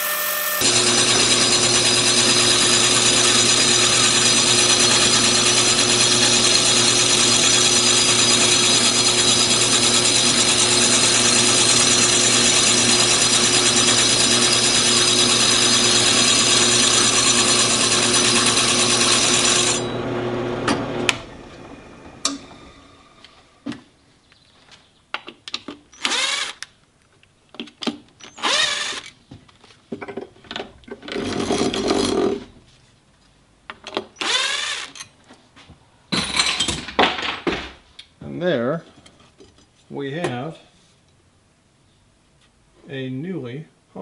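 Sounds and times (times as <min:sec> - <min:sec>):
abrasive disc grinding hiss: 0:00.0 - 0:00.6
drill press motor hum: 0:00.0 - 0:23.6, 0:34.2 - 0:35.0.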